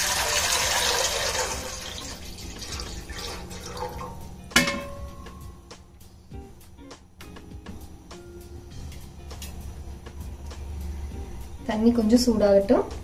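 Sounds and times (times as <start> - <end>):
water pouring into a pot: 0.0 - 4.2
metal clank with ring: 4.6 - 5.4.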